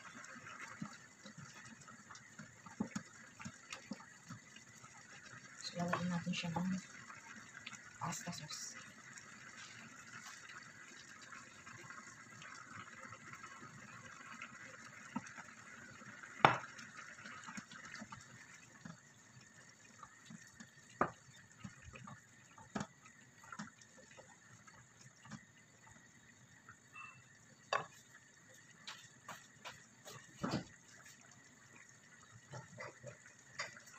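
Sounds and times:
wooden spoon stirring in pan: 9.4 - 10.9, 19.9 - 25.6, 27.6 - 33.9.

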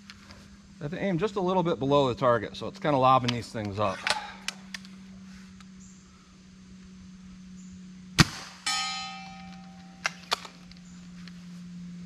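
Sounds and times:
steady low hum: 0.0 - 12.0
air rifle shot: 8.2 - 8.7
metallic clang: 8.6 - 10.7.

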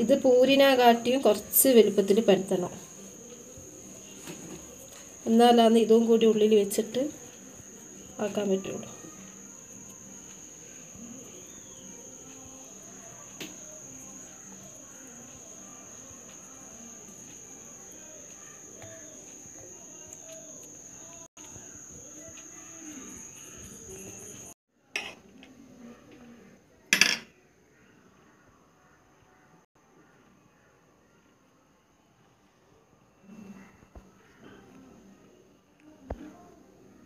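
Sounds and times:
faint low background murmur: 0.0 - 37.0
steady high thin whine: 0.1 - 24.6.

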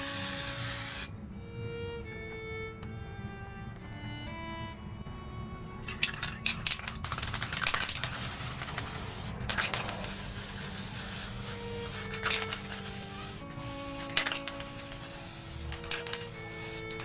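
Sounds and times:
spray paint can hissing: 0.0 - 1.1, 5.8 - 17.0.

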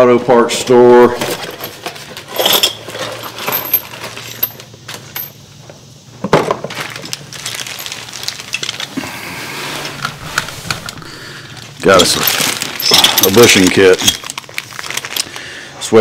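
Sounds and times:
parts clattering: 0.7 - 15.4
small metal parts clinking: 1.2 - 5.4, 6.6 - 9.0, 10.0 - 15.4.

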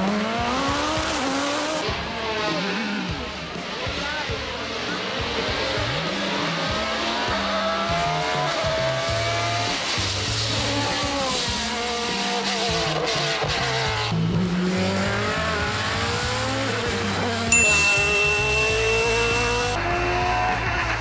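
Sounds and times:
race car engine revving: 0.0 - 3.1, 4.7 - 17.5
background music with bass line: 0.4 - 12.0.

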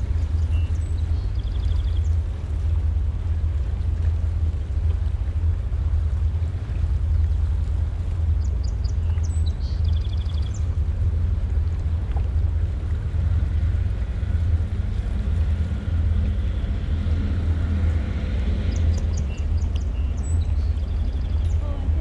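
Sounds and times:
boat engines rumbling: 0.0 - 22.0
small birds chirping: 8.4 - 10.7, 18.6 - 22.0.

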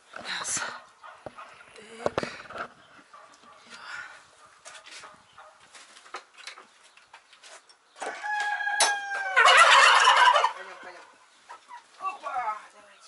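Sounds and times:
fowl calling: 8.1 - 12.0.

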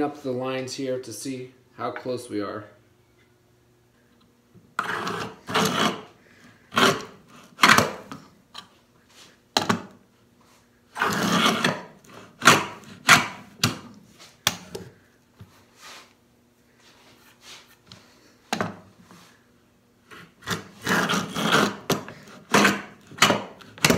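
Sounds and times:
hand tool scraping wood: 4.8 - 8.2, 10.9 - 14.4, 20.1 - 23.9.

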